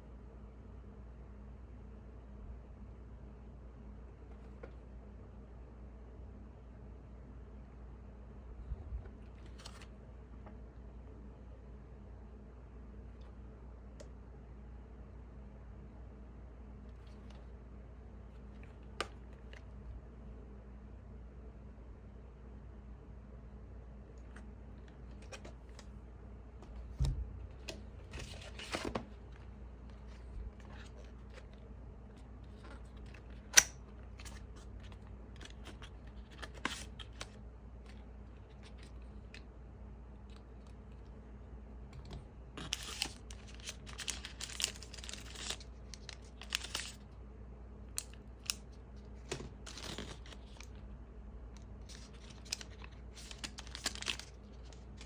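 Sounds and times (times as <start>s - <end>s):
plastic wrapping crinkling: 42.6s - 47.0s, 51.8s - 55.0s.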